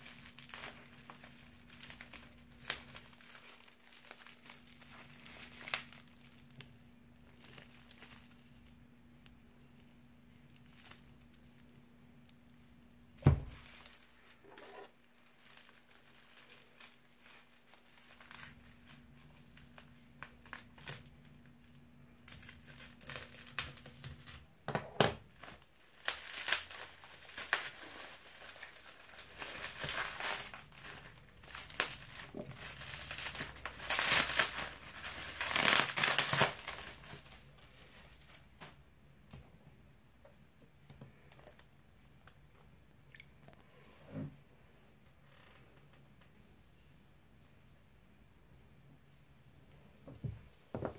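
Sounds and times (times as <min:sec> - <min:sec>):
bubble wrap crinkling: 0:00.0 - 0:39.0.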